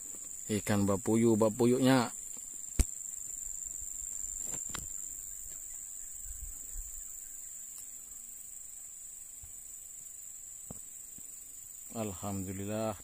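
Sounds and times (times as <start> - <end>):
high-pitched insect drone: 0.0 - 13.0
faint click: 7.7 - 7.9.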